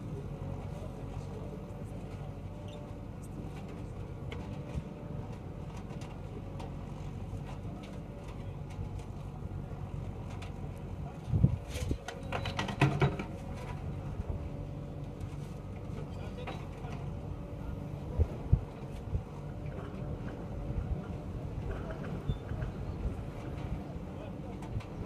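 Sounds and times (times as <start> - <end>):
diesel engine running: 0.0 - 25.0
knocks and clatter: 12.0 - 13.8.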